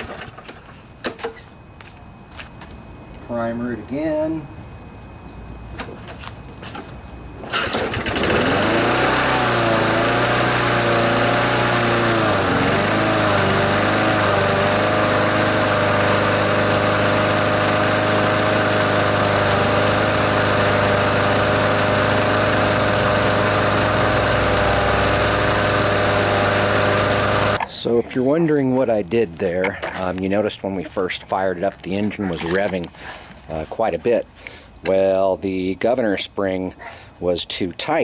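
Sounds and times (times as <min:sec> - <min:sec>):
lawnmower engine running: 0:00.0 - 0:00.8, 0:07.4 - 0:27.6.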